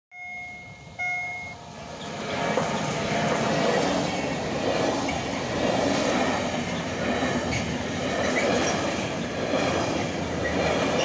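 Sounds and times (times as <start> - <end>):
single-note warning signal: 0.1 - 1.8
train wheels rumbling on rails: 0.2 - 11.0.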